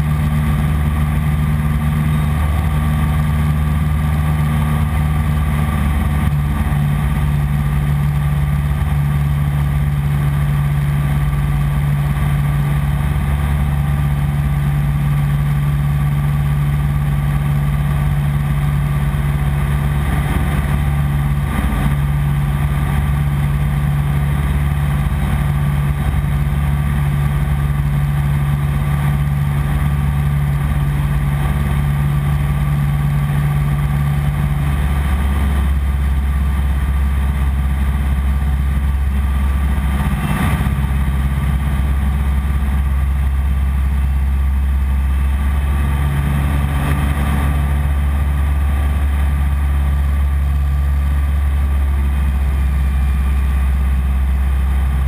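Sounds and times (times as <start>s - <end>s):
propeller plane engine drone: 0.0s - 55.0s.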